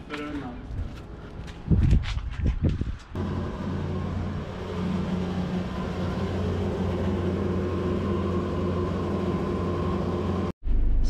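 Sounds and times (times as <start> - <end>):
motor humming: 3.2 - 10.5.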